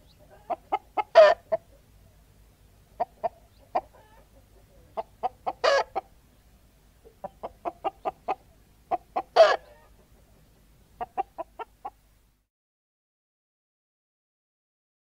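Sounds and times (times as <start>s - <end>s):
hens clucking: 0.0s - 1.9s, 2.9s - 6.2s, 7.0s - 12.0s.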